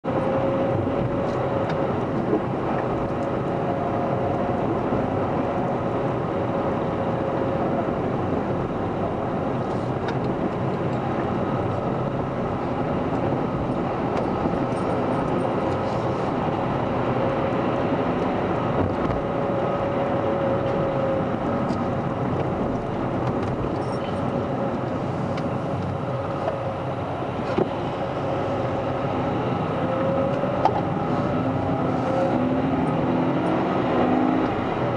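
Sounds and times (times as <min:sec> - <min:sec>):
car engine hum from inside cabin: 0:00.0 - 0:34.9.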